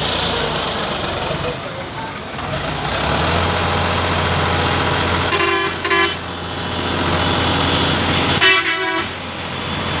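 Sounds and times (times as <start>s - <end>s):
horn toots: 5.3s - 6.2s, 8.4s - 9.2s.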